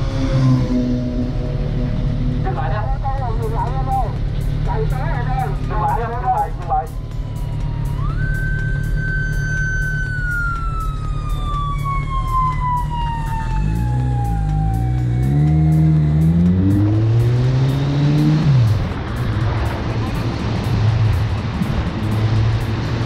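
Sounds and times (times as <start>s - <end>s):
motorcycle engine accelerating: 0.0s - 2.4s, 12.9s - 23.0s.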